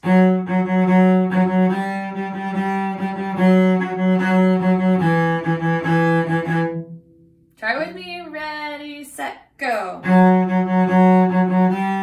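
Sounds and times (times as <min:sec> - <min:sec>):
solo cello bowing: 0:00.0 - 0:07.0, 0:10.0 - 0:12.0.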